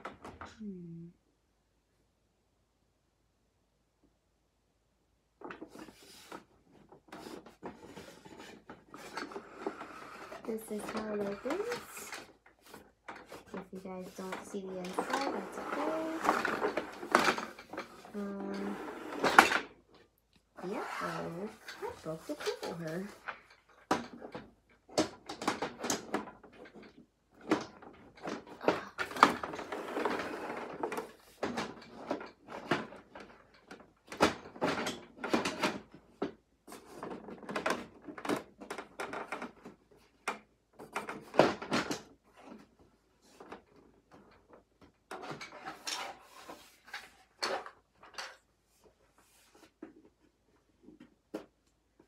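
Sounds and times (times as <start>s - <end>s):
rustling: 5.5s - 24.3s
plastic toy clicks and rattles: 8.9s - 12.4s, 13.1s - 19.6s.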